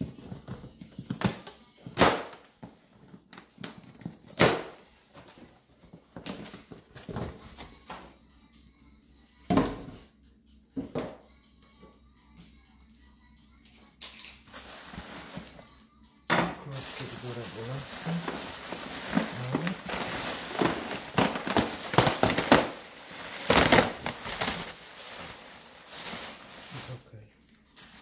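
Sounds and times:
plastic wrap crinkling: 14.5s - 15.6s, 16.6s - 28.0s.

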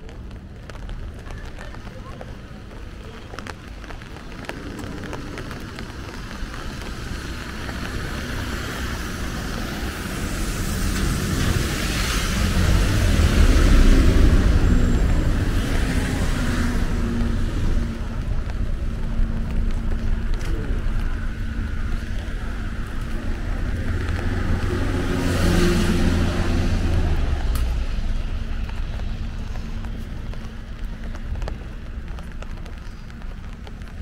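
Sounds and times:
engine hum: 0.0s - 34.0s
vehicle passing on wet road: 0.0s - 34.0s.

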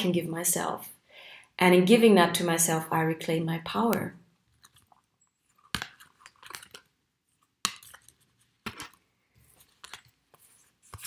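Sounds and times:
cards crackling and rustling: 4.5s - 11.0s
cards tapping: 7.6s - 9.0s.

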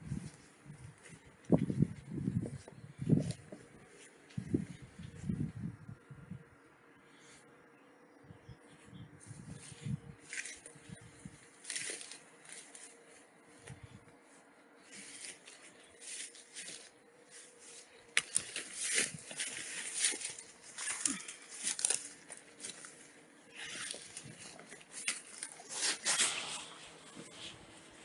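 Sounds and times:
footsteps through dry grass: 0.0s - 6.0s, 8.7s - 28.0s
leaves and stems crackling: 9.2s - 28.0s.

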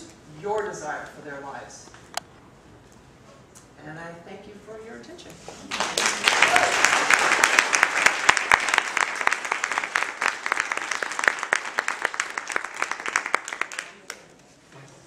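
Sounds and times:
audience applauding: 5.7s - 14.3s.

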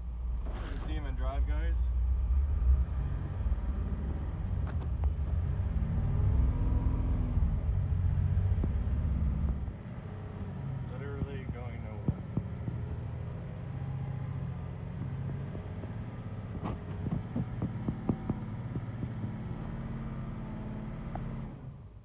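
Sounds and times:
truck engine drone: 0.0s - 22.0s
knocks and rattles: 15.0s - 19.6s.

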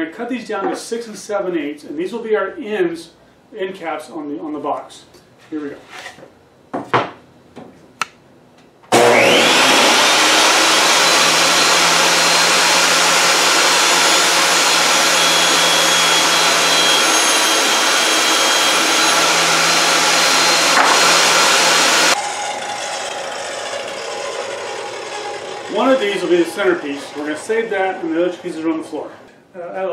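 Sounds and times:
saw blade cutting wood: 8.9s - 29.0s
table saw running: 8.9s - 29.1s.

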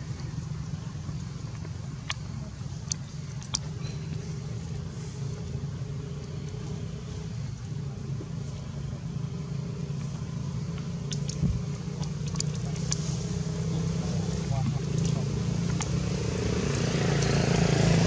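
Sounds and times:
faint steady hum: 0.0s - 18.0s
vehicle engine rumbling: 0.0s - 18.0s.

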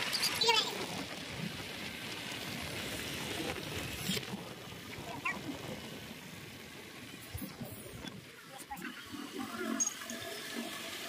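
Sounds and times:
low road rumble: 0.0s - 8.8s.

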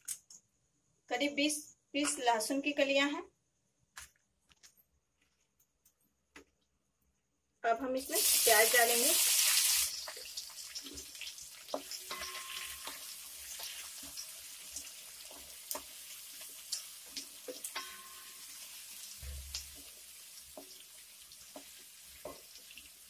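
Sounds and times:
onions sizzling in oil: 8.0s - 23.0s.

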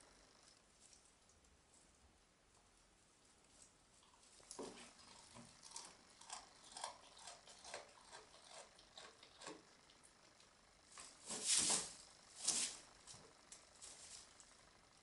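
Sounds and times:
goat chewing branches: 2.6s - 14.7s
branches rustling: 10.9s - 14.6s.

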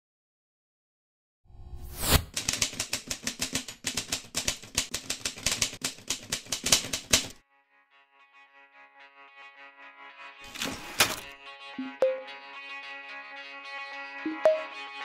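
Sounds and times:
typewriter key clacks: 2.3s - 7.4s
faint melodic music: 10.4s - 12.8s, 14.2s - 15.0s.

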